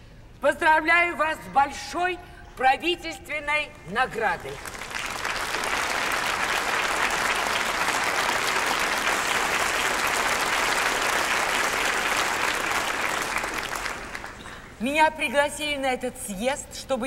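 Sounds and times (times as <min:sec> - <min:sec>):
large audience applauding: 0:04.4 - 0:14.8.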